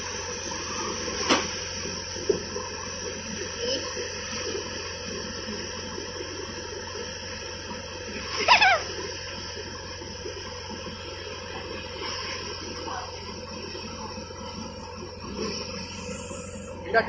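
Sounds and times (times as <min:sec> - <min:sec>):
wavering cry falling in pitch: 0:08.4 - 0:08.9.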